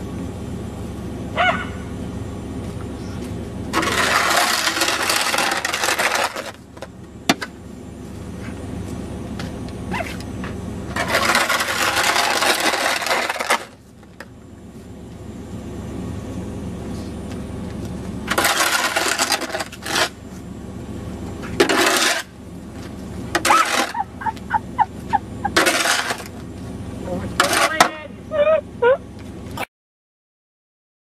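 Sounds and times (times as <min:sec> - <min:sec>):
steady low rumble: 0:00.0 - 0:29.6
snow shovel scraping pavement: 0:03.1 - 0:06.7, 0:09.9 - 0:14.0, 0:18.2 - 0:20.5, 0:21.4 - 0:22.4, 0:23.3 - 0:26.4, 0:27.2 - 0:28.0.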